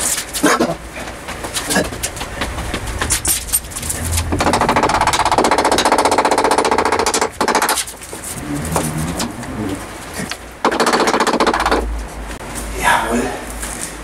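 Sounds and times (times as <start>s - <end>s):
fast mechanical rattle: 1.4s - 8.4s, 10.6s - 11.9s.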